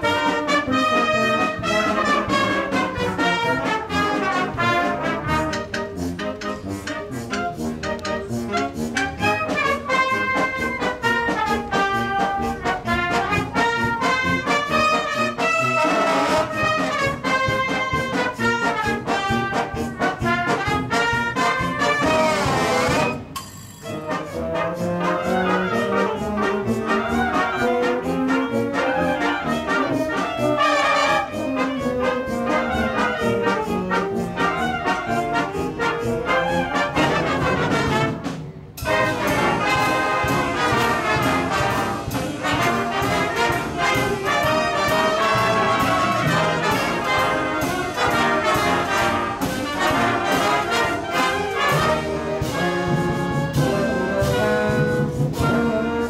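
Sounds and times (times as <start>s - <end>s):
concert band playing: 0.0s - 56.0s.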